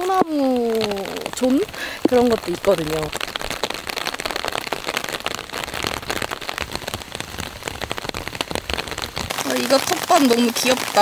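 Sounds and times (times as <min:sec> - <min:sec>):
rain on a plastic umbrella: 0:00.0 - 0:11.0.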